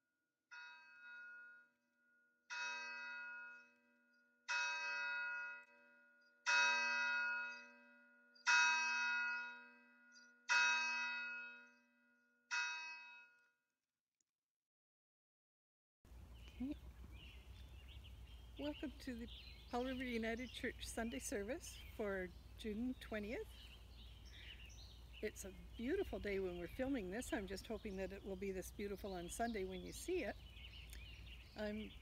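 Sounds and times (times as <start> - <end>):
church bell tolling: 2.5 - 3.7, 4.5 - 11.7, 12.5 - 13.3.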